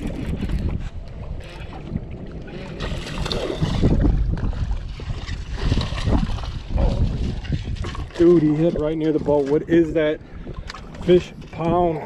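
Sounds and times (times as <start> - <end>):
wind rushing over microphone: 0.0 - 12.0
fish thrashing splashing water: 2.3 - 8.7.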